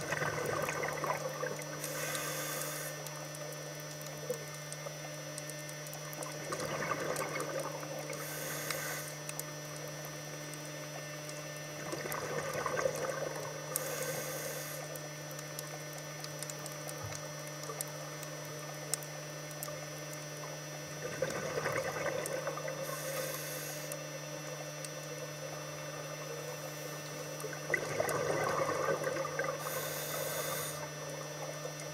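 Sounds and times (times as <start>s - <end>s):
exhaled bubbles burbling: 0.0s - 2.1s, 3.0s - 31.9s
steady low hum: 0.0s - 31.9s
regulator inhalation hiss: 1.8s - 3.0s, 8.2s - 9.2s, 13.8s - 14.9s, 22.8s - 23.9s, 29.6s - 30.9s.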